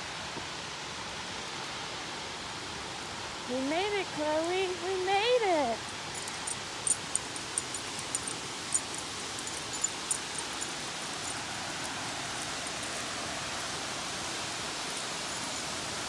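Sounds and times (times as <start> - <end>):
waterfall roaring: 0.0 - 16.0.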